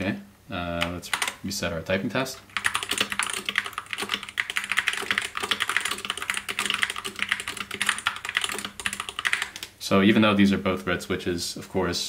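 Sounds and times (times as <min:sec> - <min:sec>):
fast typing on mechanical keyboard: 0:00.8 - 0:01.4, 0:02.5 - 0:09.7.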